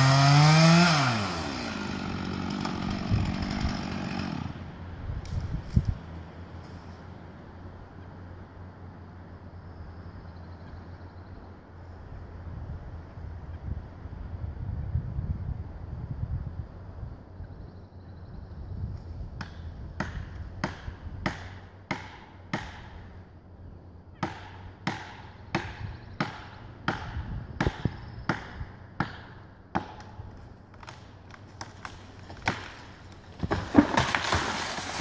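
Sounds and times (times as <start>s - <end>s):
axe chopping wood: 19.4s - 23.0s, 24.2s - 30.2s, 30.8s - 32.8s, 33.4s - 35.0s
tree crashing down: 30.8s - 35.0s.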